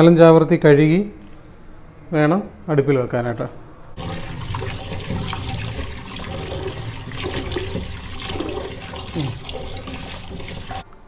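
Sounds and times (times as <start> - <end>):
tap water running into metal pan: 4.0 - 10.9
washing pieces by hand: 4.0 - 10.9.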